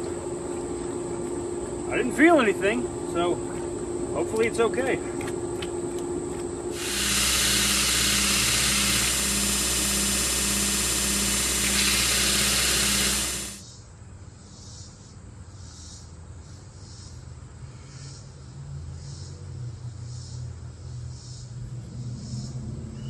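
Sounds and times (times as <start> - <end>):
belt grinder grinding: 6.7 - 13.6.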